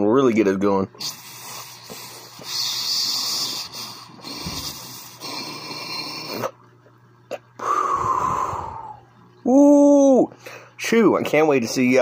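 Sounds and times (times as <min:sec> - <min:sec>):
water pipe bubbling: 0:01.0 - 0:09.2.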